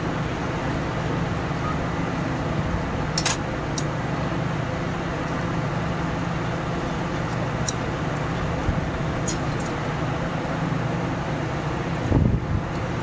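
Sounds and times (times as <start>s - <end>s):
passing traffic: 0.0s - 13.0s.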